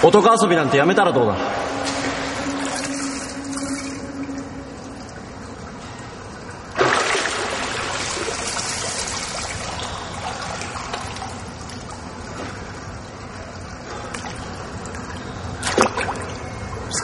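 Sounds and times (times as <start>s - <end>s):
water streaming and lapping: 1.2s - 17.0s
swimmer splashing: 1.4s - 6.0s, 6.7s - 12.9s.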